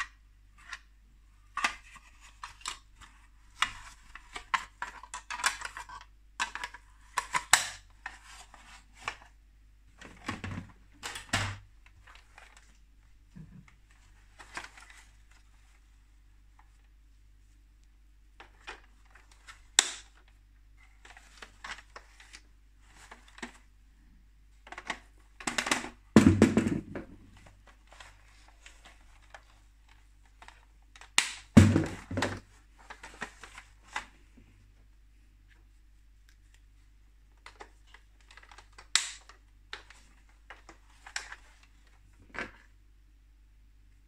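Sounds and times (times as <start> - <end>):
plastic toy parts clicking and rattling: 3.6 - 8.2.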